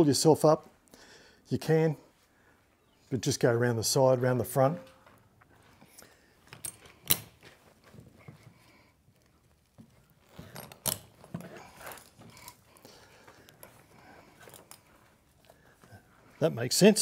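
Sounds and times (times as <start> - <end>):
rope rustling: 5.0 - 16.6
metal snap hooks clinking: 6.5 - 7.4.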